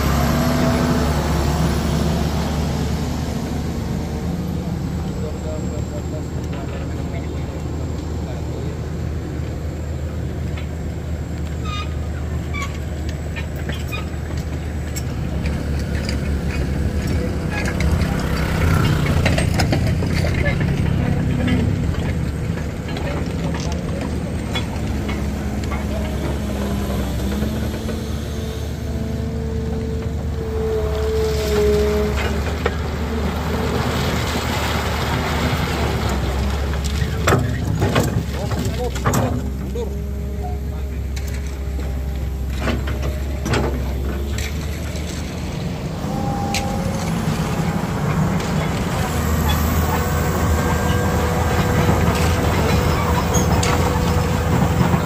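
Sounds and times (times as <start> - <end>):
diesel truck engine idling: 0.0 - 13.6, 31.9 - 55.0.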